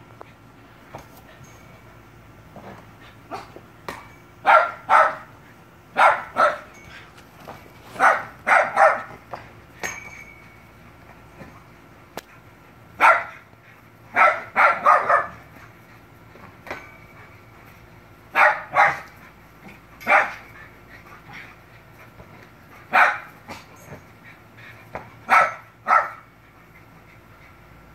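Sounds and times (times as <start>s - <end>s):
dog barking: 4.4s - 5.3s, 6.0s - 6.7s, 8.0s - 9.1s, 13.0s - 13.4s, 14.1s - 15.4s, 18.3s - 19.1s, 20.0s - 20.4s, 22.9s - 23.3s, 25.3s - 26.2s.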